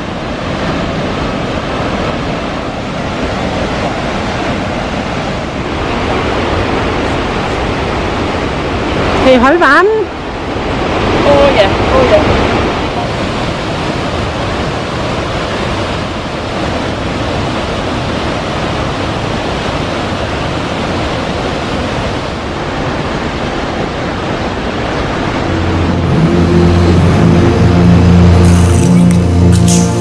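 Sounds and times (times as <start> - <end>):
waterfall roaring: 0.0 - 30.0
music with low held notes: 25.4 - 30.0.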